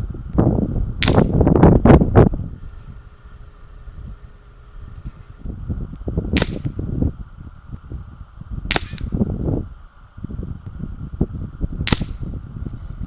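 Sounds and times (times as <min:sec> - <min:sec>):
low rumble: 0:00.0 - 0:13.0
air rifle shots: 0:01.0 - 0:01.6, 0:06.3 - 0:06.8, 0:08.6 - 0:09.3, 0:11.8 - 0:12.4.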